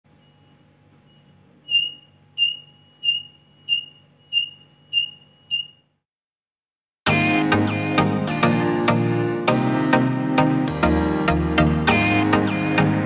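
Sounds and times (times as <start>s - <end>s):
buzzer alarm beeping: 0.2s - 6.0s.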